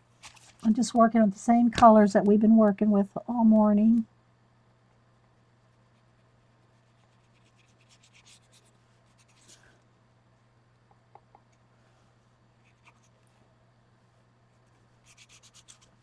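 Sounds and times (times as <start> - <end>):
steady low hum: 0.0 - 16.0
brush scratching paint on card: 5.9 - 9.6, 12.6 - 13.2, 14.6 - 16.0.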